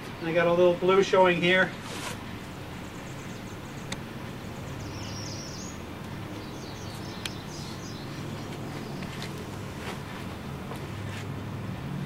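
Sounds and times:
steady low hum: 0.0s - 12.0s
faint bird chirps: 2.8s - 5.8s.

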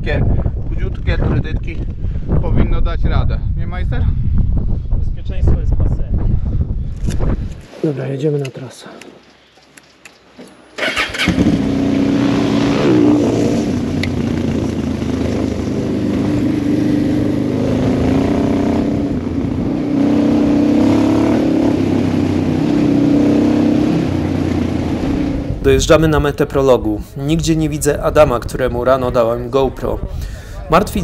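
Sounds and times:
faint clicks: 8.4s - 10.6s
motorcycle engine running hard: 10.9s - 25.6s.

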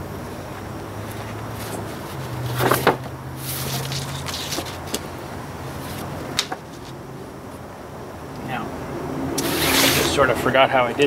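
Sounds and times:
paper sheets rustling: 1.2s - 5.1s, 9.4s - 10.1s.

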